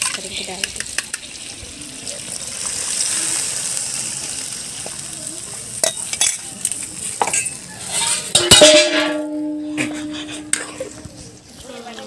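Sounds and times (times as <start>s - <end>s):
liquid poured into hot oil: 0.0s - 8.4s
curry sizzling in hot oil: 0.0s - 12.0s
metal spoon knocking on pan: 8.3s - 10.8s.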